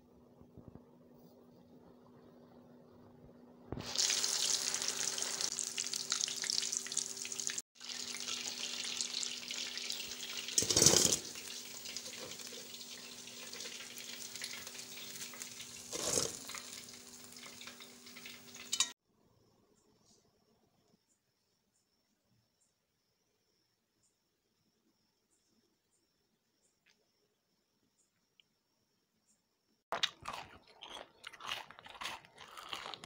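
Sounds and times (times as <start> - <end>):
food deep-frying in hot oil: 3.7 - 19.0
wire strainer knocking pan: 17.5 - 18.9.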